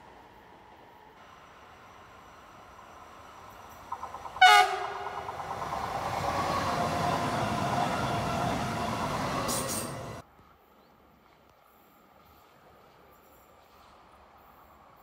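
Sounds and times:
train rolling on rails: 0:00.0 - 0:10.3
train horn blast: 0:04.4 - 0:05.2.

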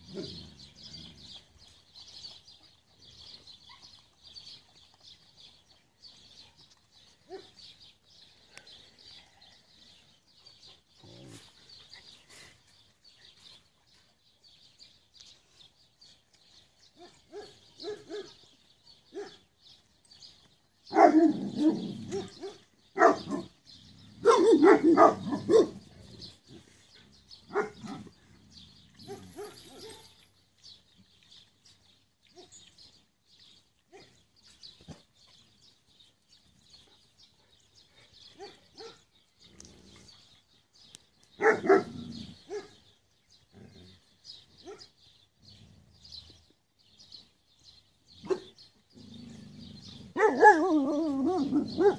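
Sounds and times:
dogs barking: 0:17.0 - 0:18.4, 0:19.1 - 0:19.4, 0:20.9 - 0:23.6, 0:24.2 - 0:25.8, 0:27.5 - 0:28.1, 0:29.0 - 0:30.2, 0:38.3 - 0:39.1, 0:41.4 - 0:42.8, 0:44.6 - 0:44.9, 0:48.2 - 0:48.6, 0:50.0 - 0:51.9.

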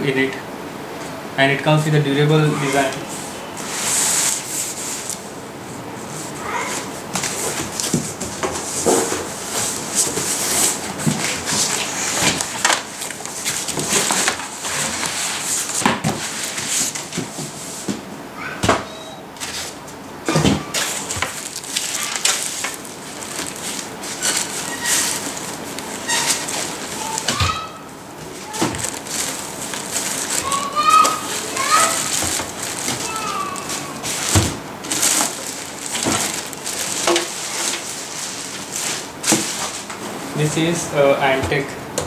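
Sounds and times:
foam and cardboard rustling: 0:03.6 - 0:05.3, 0:05.9 - 0:18.0, 0:19.4 - 0:41.6
plastic wrap crinkling: 0:03.6 - 0:05.3, 0:06.2 - 0:17.3, 0:20.5 - 0:40.0
short squeaks: 0:24.2 - 0:25.2, 0:26.0 - 0:27.8.

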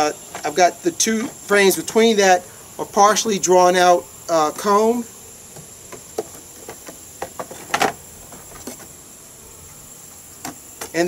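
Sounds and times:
high-pitched insect drone: 0:00.0 - 0:11.0
wooden frames knocking on box: 0:05.6 - 0:08.9.

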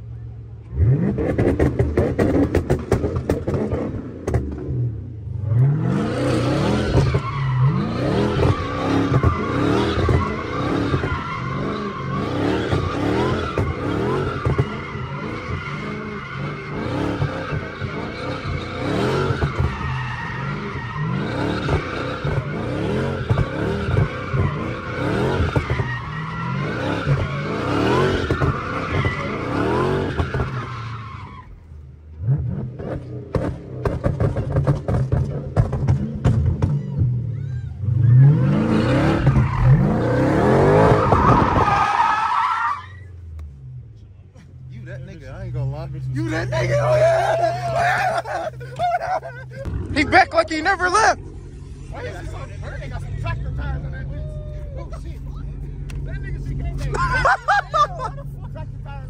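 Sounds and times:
car engine revving: 0:00.6 - 0:42.3, 0:44.6 - 0:59.0
tyres squealing: 0:06.6 - 0:31.6, 0:36.6 - 0:43.1, 0:46.0 - 0:51.2.

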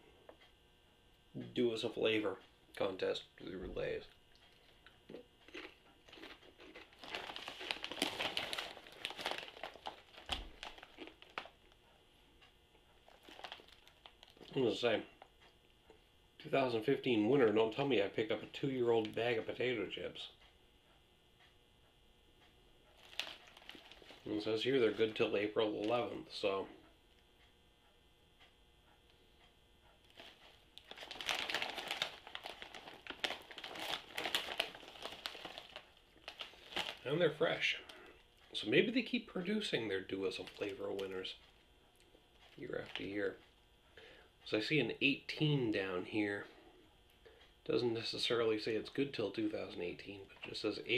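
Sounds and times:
chip bag crinkling: 0:05.4 - 0:11.8, 0:13.0 - 0:15.0, 0:23.0 - 0:26.1, 0:30.0 - 0:41.5, 0:42.3 - 0:43.4.

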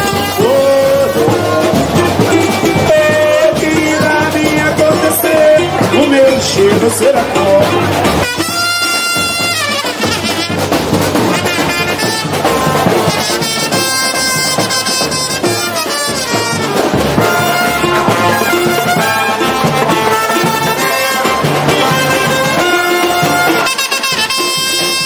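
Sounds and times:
horns playing long notes: 0:00.0 - 0:25.0
steady drumming: 0:00.0 - 0:25.0.

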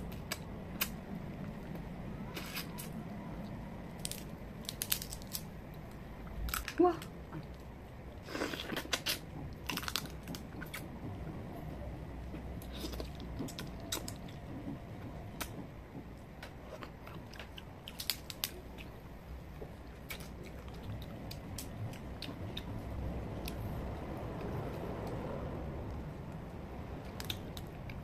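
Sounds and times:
crab shell cracking and crunching: 0:04.0 - 0:05.5, 0:08.6 - 0:10.8, 0:16.4 - 0:18.9.

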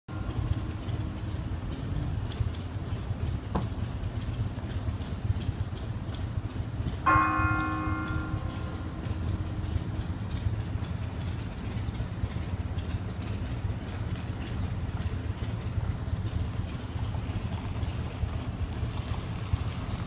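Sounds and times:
church bell ringing: 0:00.1 - 0:03.0, 0:06.8 - 0:12.6
low steady rumble: 0:00.1 - 0:20.0.

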